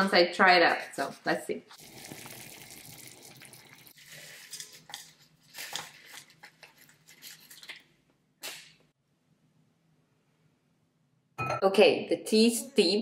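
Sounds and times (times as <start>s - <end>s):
water bubbling at a boil: 1.8s - 4.0s
plastic packet crinkling: 4.0s - 7.9s.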